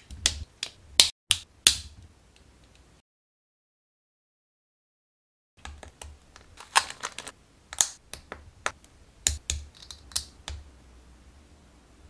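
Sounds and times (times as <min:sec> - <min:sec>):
plastic parts clicking and snapping: 0:05.6 - 0:10.6.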